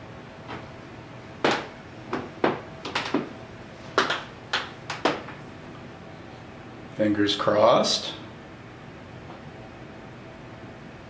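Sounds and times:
small cooling fan whirring: 0.0s - 11.0s
sharp clicks and knocks: 1.4s - 3.3s, 4.0s - 5.4s.

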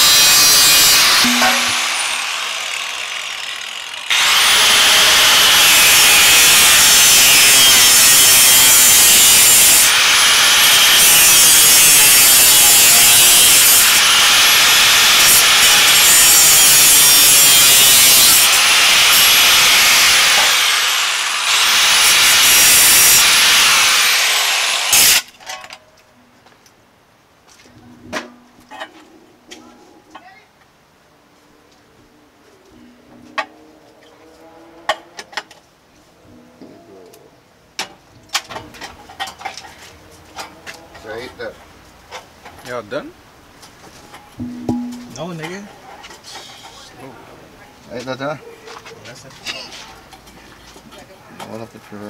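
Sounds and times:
angle grinder cutting metal pipe: 0.0s - 25.3s.

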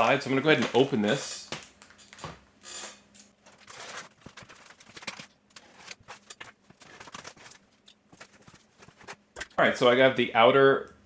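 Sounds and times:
cardboard rustling: 3.5s - 9.3s.

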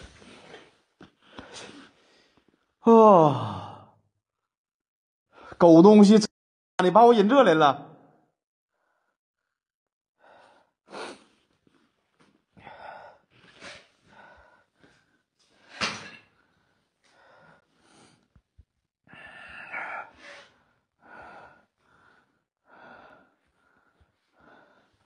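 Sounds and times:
person breathing heavily: 12.6s - 15.8s, 19.1s - 25.0s.

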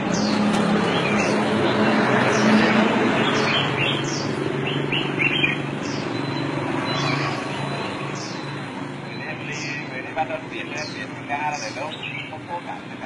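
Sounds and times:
small birds chirping: 0.0s - 13.0s
street background noise: 0.0s - 13.0s.

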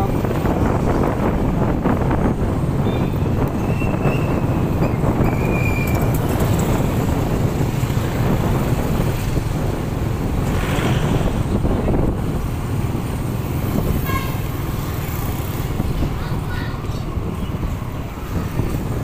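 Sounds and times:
short high-pitched tones: 0.0s - 0.2s
vehicle engine and road noise: 0.0s - 19.0s.

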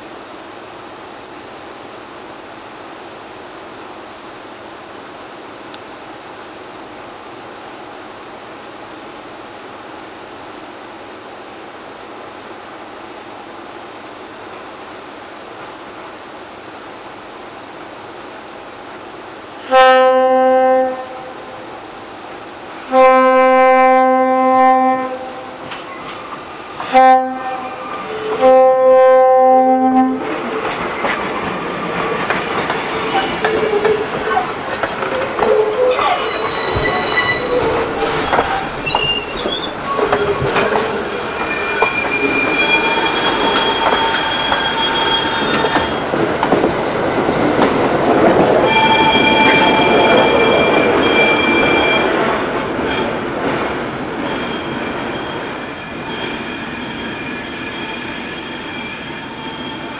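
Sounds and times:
train rumbling and clattering on rails: 0.0s - 59.9s
train horn blast: 19.6s - 21.7s, 22.9s - 25.6s, 26.8s - 30.3s
metal-on-metal squealing: 35.4s - 46.1s, 48.6s - 52.2s.

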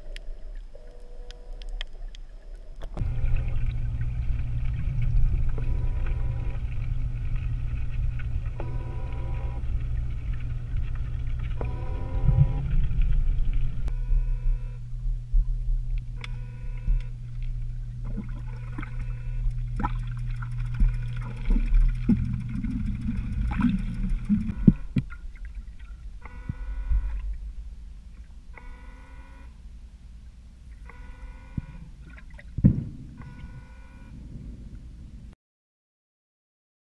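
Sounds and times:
underwater clicks: 0.0s - 3.8s, 15.9s - 25.6s
water sound: 0.0s - 29.0s
low underwater hum: 0.0s - 35.4s.

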